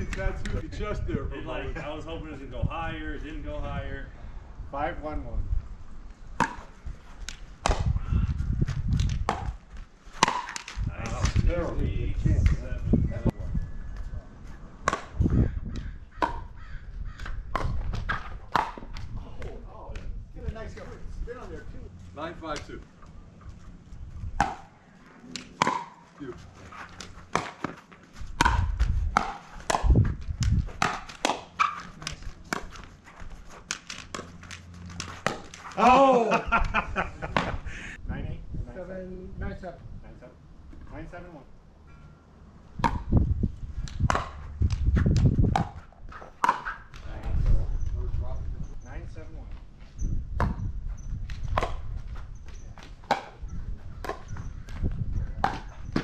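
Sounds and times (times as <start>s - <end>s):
paddles hitting plastic ball: 8.7s - 11.5s, 14.8s - 15.2s, 17.2s - 20.1s, 25.3s - 26.2s, 26.8s - 35.9s
players' footsteps: 17.2s - 37.6s
shuffling footsteps on court: 26.0s - 35.8s.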